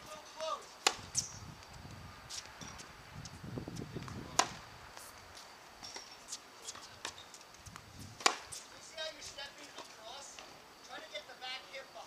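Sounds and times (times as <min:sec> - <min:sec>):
racket striking tennis ball: 0:00.3 - 0:01.4, 0:04.0 - 0:04.6, 0:05.9 - 0:07.4, 0:08.2 - 0:08.7.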